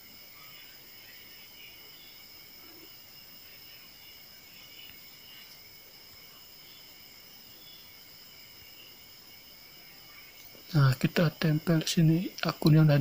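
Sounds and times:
faint insects chirring: 0:00.0 - 0:13.0
low hiss: 0:00.0 - 0:13.0.

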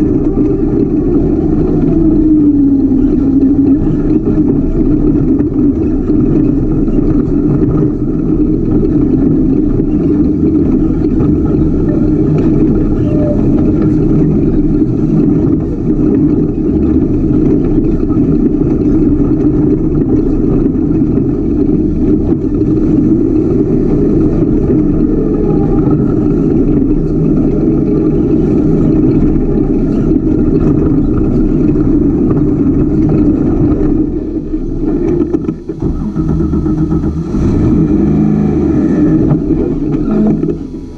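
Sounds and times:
loud race car engine running: 0:00.0 - 0:40.9.

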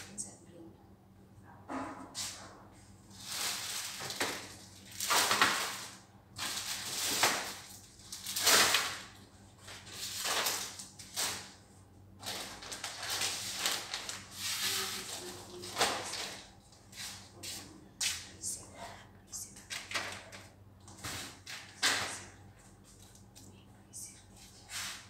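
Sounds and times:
plastic wrapping crinkling: 0:03.1 - 0:11.6, 0:12.2 - 0:16.5.

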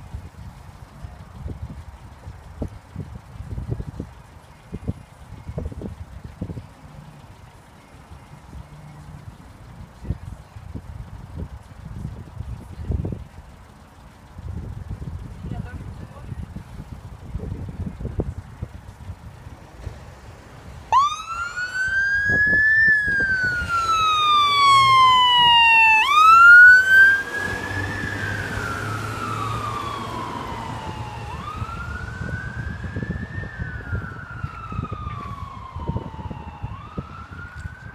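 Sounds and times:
siren wailing: 0:20.9 - 0:37.9.

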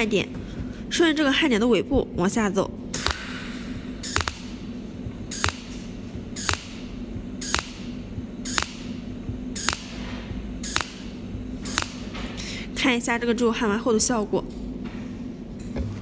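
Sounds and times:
welder low hum: 0:02.8 - 0:13.6
welding pulses snapping: 0:02.9 - 0:12.2.

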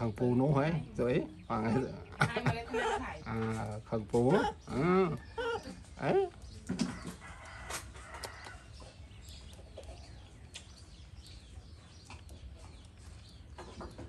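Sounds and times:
chicken clucking: 0:04.2 - 0:14.0.

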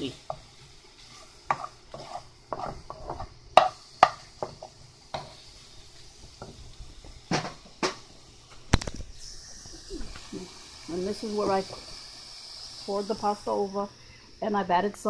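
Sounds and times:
food sizzling: 0:00.0 - 0:15.0
spatula scraping a skillet: 0:00.1 - 0:06.7.

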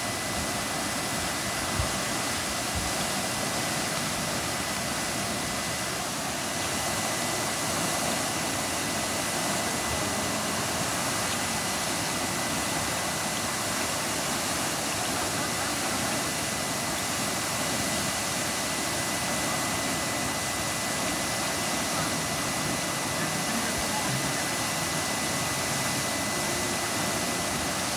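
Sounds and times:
thin high whine: 0:00.0 - 0:27.9
water spraying from hydrant: 0:00.0 - 0:27.9.

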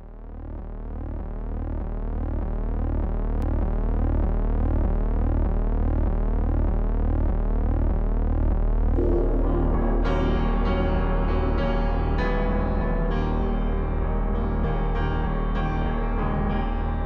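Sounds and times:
ambient synth drone: 0:08.8 - 0:17.0.

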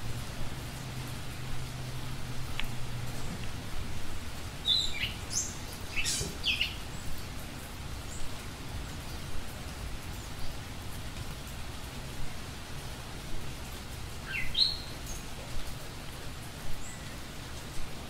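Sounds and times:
steady hiss: 0:00.0 - 0:18.0
slowed bird chirps and calls: 0:04.6 - 0:07.1, 0:14.2 - 0:15.3.

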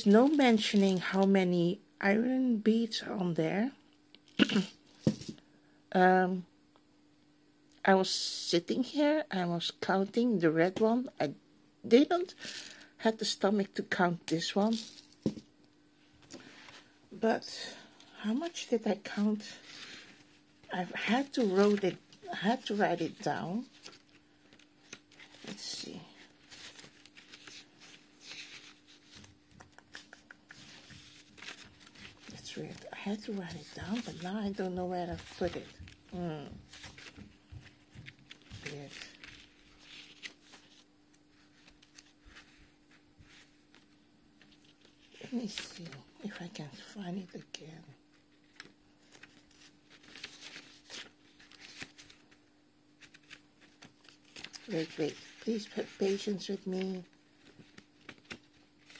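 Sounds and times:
paper and plastic rustling: 0:00.0 - 0:01.3, 0:21.0 - 0:46.8, 0:48.4 - 0:52.4, 0:53.0 - 0:58.9
faint steady hum: 0:00.0 - 0:58.9.

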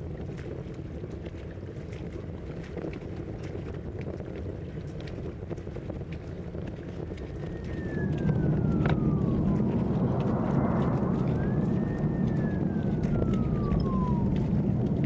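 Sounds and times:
low rumble: 0:05.0 - 0:15.0
emergency siren wailing: 0:07.2 - 0:15.0.

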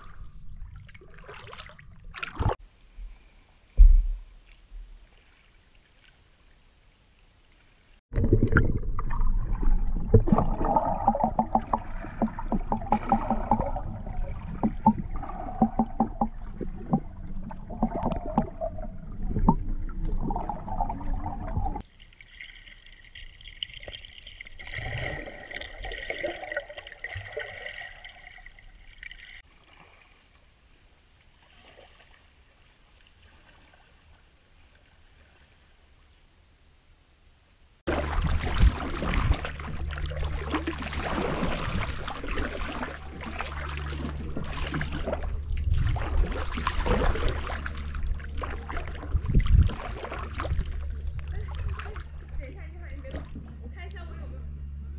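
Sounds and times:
faint water sounds: 0:00.0 - 0:54.9
underwater churning and bubbling: 0:08.1 - 0:29.4, 0:37.9 - 0:53.9.

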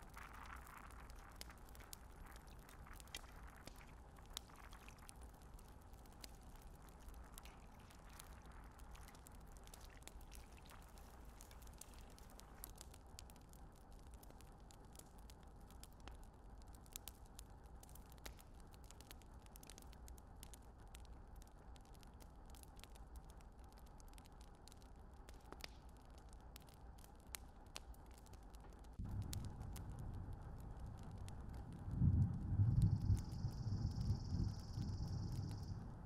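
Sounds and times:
faint low rumble: 0:27.7 - 0:36.0.

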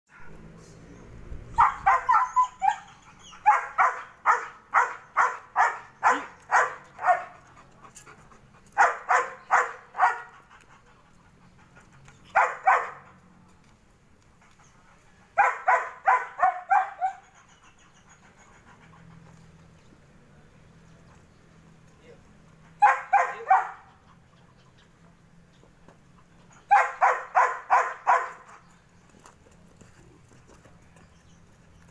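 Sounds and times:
dog barking rapidly: 0:01.6 - 0:07.4, 0:08.8 - 0:10.3, 0:12.3 - 0:13.0, 0:15.4 - 0:17.2, 0:22.8 - 0:23.9, 0:26.7 - 0:28.5.

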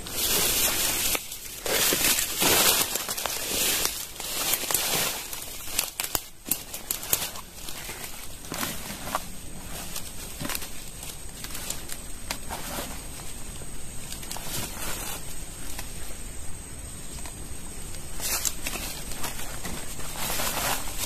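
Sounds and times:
fishing rod and bag rustling: 0:00.0 - 0:16.2, 0:17.9 - 0:21.0.

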